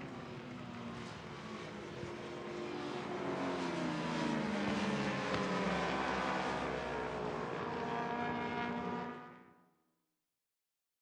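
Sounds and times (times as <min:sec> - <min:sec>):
motorbikes racing past: 0:02.6 - 0:09.1.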